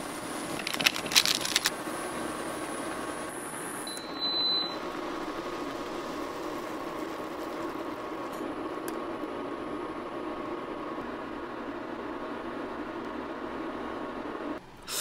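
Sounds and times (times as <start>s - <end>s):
water boiling and bubbling: 0.0s - 1.8s, 4.9s - 8.2s
short high beep: 3.9s - 4.8s.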